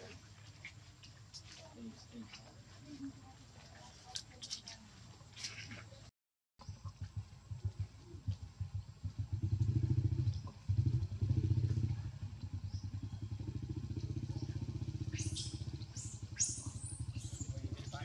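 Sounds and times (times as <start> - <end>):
small engine puttering: 6.6 - 18.0.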